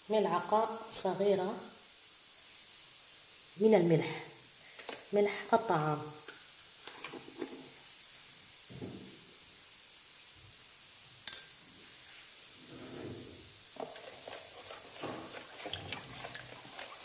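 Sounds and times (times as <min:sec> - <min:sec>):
faint steady hiss: 0:00.0 - 0:17.0
spoon stirring in plastic basin: 0:13.8 - 0:17.0.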